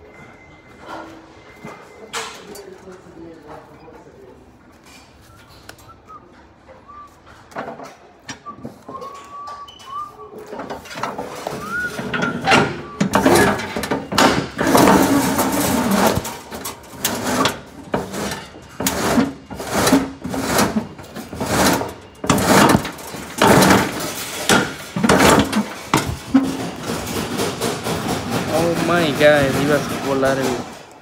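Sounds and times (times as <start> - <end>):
handling knocks and rattles: 7.5 - 31.0.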